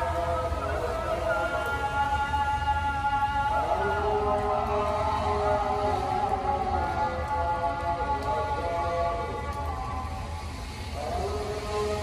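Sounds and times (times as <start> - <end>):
rain hissing: 0.0 - 12.0.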